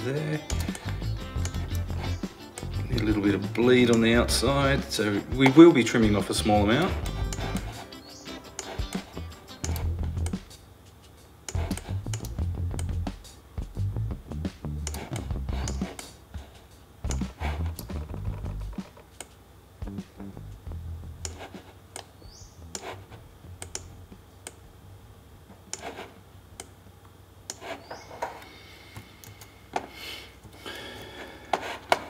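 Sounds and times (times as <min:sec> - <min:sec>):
mouse and keyboard clicks: 0:08.6 - 0:10.4, 0:11.5 - 0:13.0, 0:14.8 - 0:16.7, 0:21.2 - 0:22.1.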